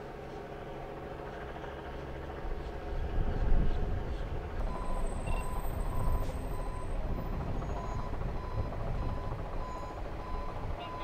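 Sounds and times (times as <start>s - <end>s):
low engine rumble: 0.0s - 11.0s
reversing alarm beeping: 4.6s - 11.0s.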